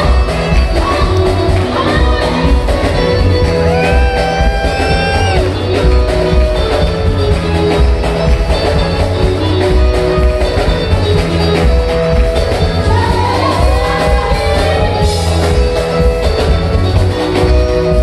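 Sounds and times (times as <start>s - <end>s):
live band playing upbeat music: 0.0s - 18.0s
person singing: 12.8s - 15.7s.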